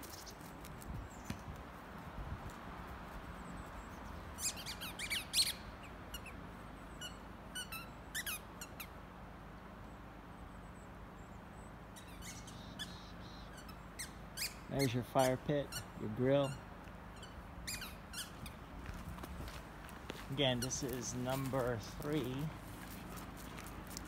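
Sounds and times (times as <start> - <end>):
faint background noise: 0.0 - 24.0
short high-pitched squeaks: 12.0 - 18.6.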